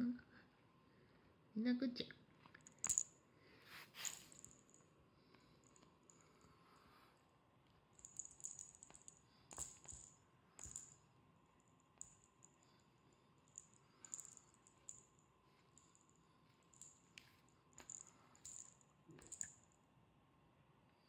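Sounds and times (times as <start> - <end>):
feather toy rustling and scratching: 3.7 - 4.5.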